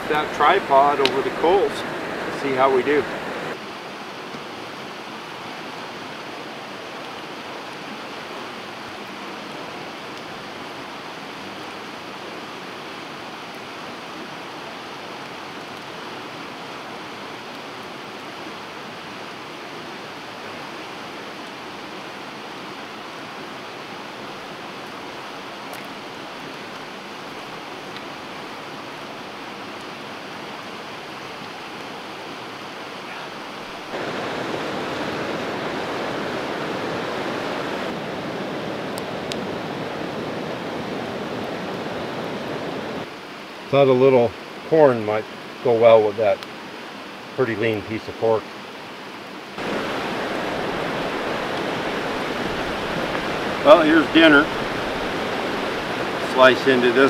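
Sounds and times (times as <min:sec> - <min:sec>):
creek water flowing: 0:00.0 - 0:57.0.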